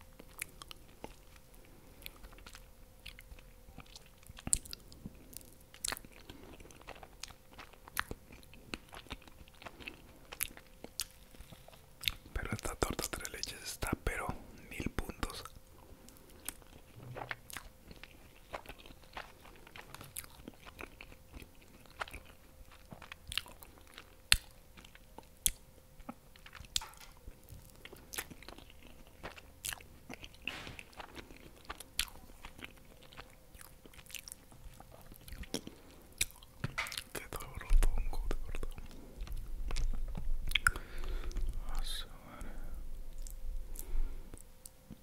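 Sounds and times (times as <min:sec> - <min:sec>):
wet chewing: 0:00.2 - 0:13.5, 0:15.0 - 0:41.9, 0:43.1 - 0:45.0
lip smacks: 0:29.2 - 0:41.5.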